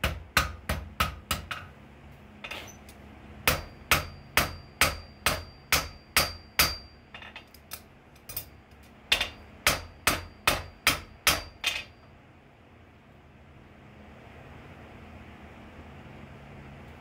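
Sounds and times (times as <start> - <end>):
hammer striking steel on anvil: 0.0 - 1.7, 3.4 - 7.5, 8.3 - 12.1.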